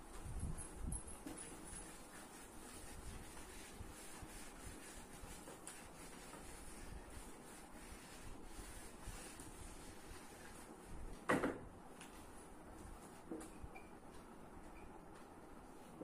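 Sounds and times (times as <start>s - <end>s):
eraser rubbing on whiteboard: 1.4s - 10.8s.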